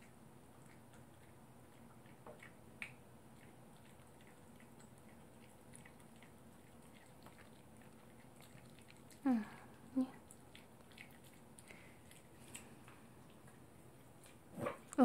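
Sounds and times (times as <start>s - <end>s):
dog chewing a treat: 0.0s - 15.0s.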